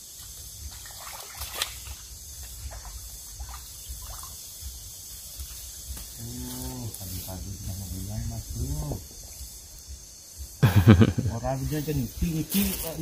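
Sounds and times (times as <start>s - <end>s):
river water trickling: 0.0s - 6.0s
small splashes: 0.6s - 4.4s.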